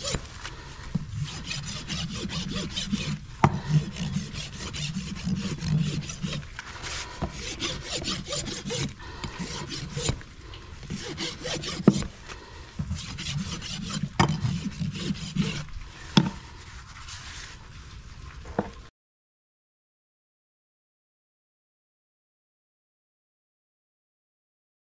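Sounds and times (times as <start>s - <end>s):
rasp filing a hoof: 0.0s - 0.3s, 1.0s - 10.2s, 10.8s - 16.5s.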